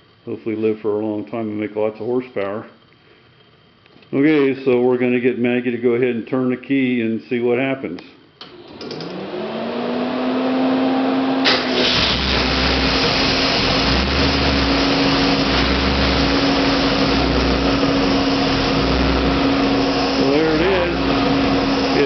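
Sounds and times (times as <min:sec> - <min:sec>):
rising whine: 0:08.6 - 0:22.0
engine starting and throbbing: 0:09.0 - 0:22.0.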